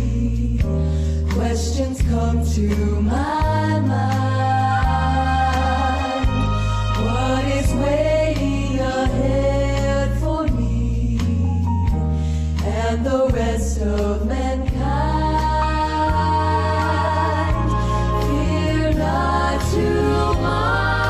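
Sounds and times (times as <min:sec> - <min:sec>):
women singing gospel harmony: 0:00.0 - 0:11.4, 0:12.6 - 0:21.0
steady bass line: 0:00.0 - 0:21.0
instrumental accompaniment: 0:03.3 - 0:09.7, 0:14.7 - 0:21.0.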